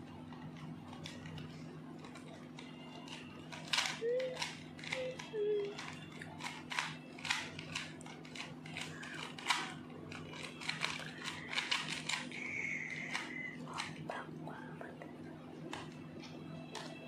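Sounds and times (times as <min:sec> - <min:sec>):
steady low hum: 0:00.0 - 0:17.0
puzzle cube clicking: 0:02.0 - 0:14.2.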